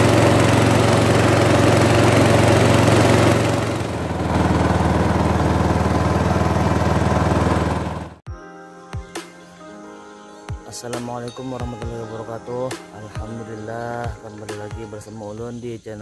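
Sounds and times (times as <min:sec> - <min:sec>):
small boat engine running: 0:00.0 - 0:08.2.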